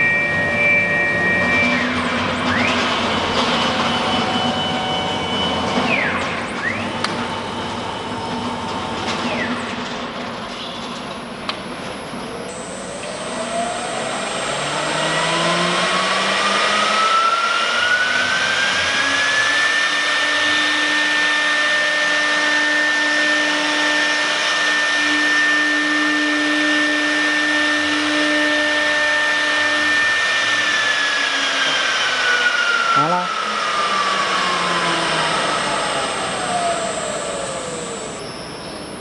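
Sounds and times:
router spindle motor whining: 12.2 - 39.0.

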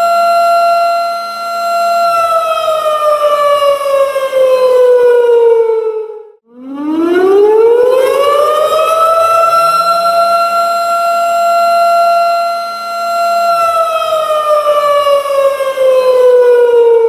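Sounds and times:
warning siren wailing: 0.0 - 17.0.

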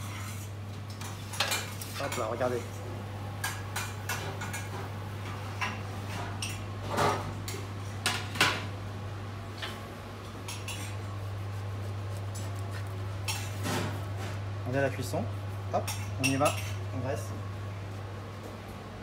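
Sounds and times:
metal tray and utensils clattering: 1.0 - 2.6.

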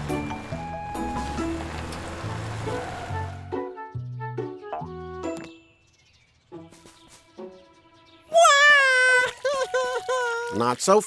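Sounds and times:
cartoon background music: 2.7 - 5.7, 6.5 - 10.4.

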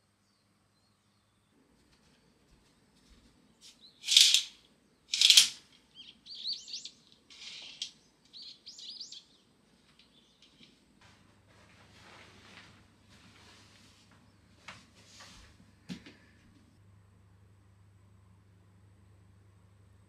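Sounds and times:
small birds chirping: 3.5 - 4.3, 4.9 - 10.8
harsh bird calls: 5.1 - 10.7.

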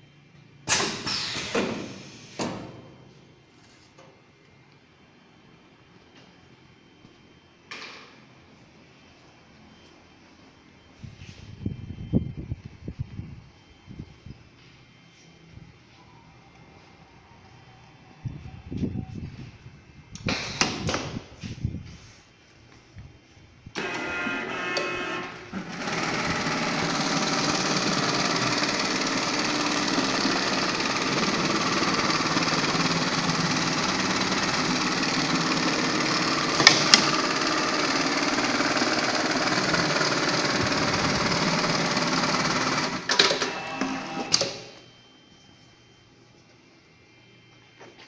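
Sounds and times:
sewing machine stitching: 23.8 - 44.3.

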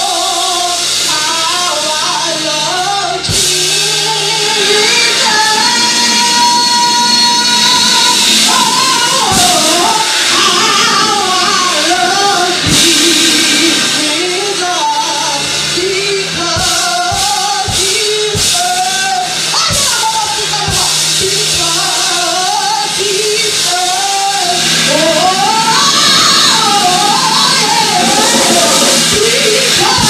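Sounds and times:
band playing: 0.0 - 30.0
woman singing into a microphone: 0.0 - 30.0.

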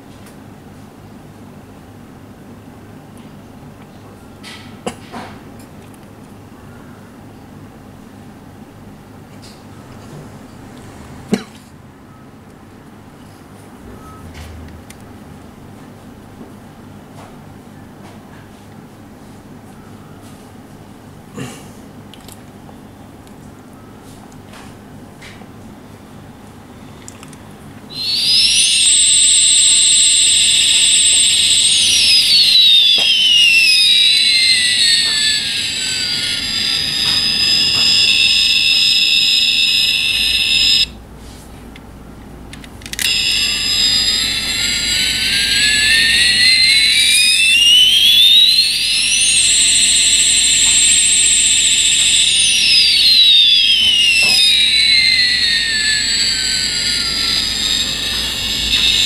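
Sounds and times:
toy jet engine sound effect: 27.9 - 41.0, 42.8 - 59.0.

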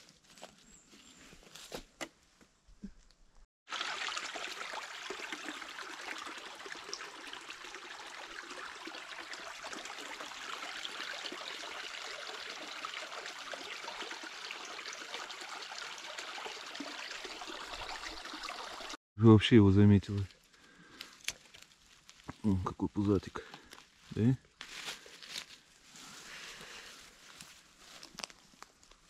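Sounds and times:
small stream running water: 3.7 - 19.0.

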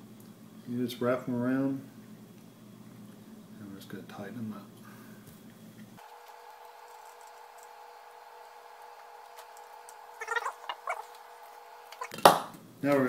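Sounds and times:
faint steady hum: 0.0 - 13.0
squeaky clicks: 10.2 - 11.2.

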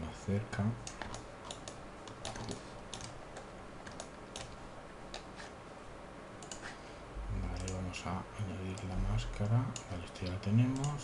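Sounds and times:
computer mouse and keyboard clicking: 0.8 - 5.3, 6.4 - 6.7, 7.4 - 7.8, 8.7 - 11.0.

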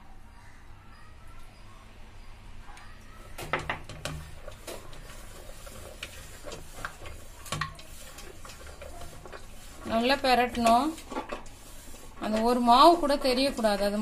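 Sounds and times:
potatoes tossed in steel bowl: 3.8 - 14.0.

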